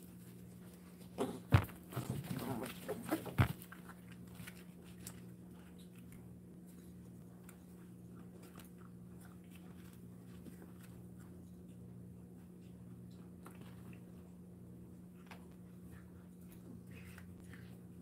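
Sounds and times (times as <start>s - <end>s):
low steady hum: 0.0s - 18.0s
dog crunching kibble: 0.1s - 14.4s.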